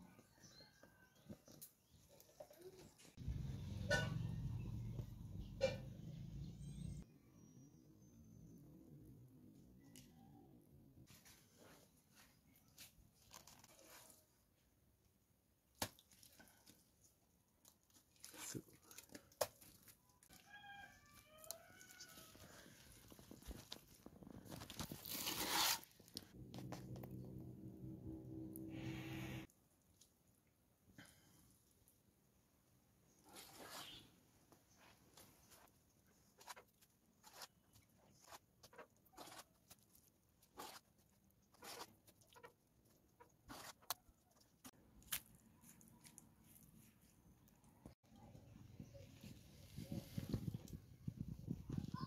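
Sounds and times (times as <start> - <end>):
gritty scrape of mud: 24.6 - 26.2, 33.2 - 34.1, 36.4 - 42.5.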